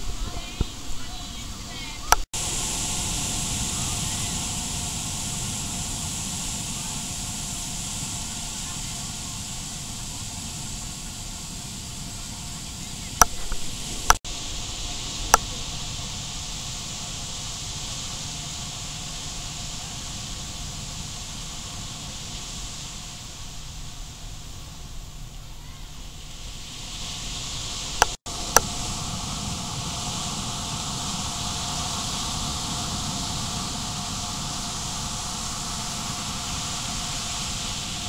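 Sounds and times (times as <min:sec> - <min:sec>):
high even hiss: 0:00.0 - 0:38.0
surf washing on shore: 0:00.0 - 0:38.0.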